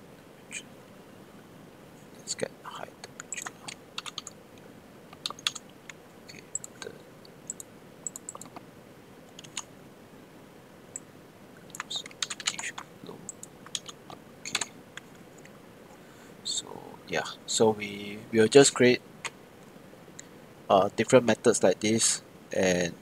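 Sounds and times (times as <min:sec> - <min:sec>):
typing on computer keyboard: 0:03.2 - 0:04.4, 0:05.1 - 0:05.6, 0:07.5 - 0:08.6, 0:09.3 - 0:09.7, 0:11.7 - 0:15.1.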